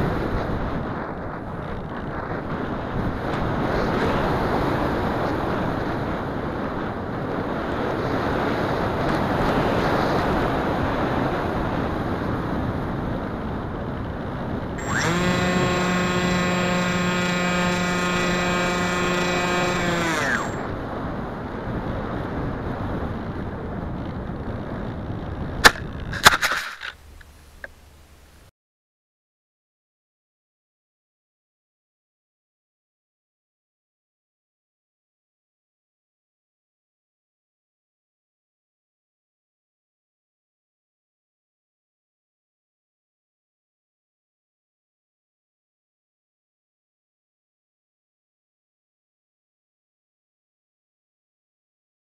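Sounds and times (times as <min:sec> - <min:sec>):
wind rushing over microphone: 0:00.0 - 0:28.5
electric motor whine: 0:14.8 - 0:20.8.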